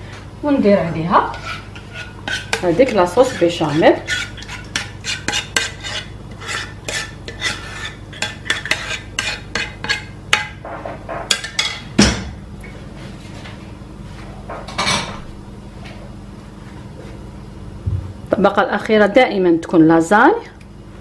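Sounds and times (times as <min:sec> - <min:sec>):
spoon scraping a saucepan: 0:01.0 - 0:10.5.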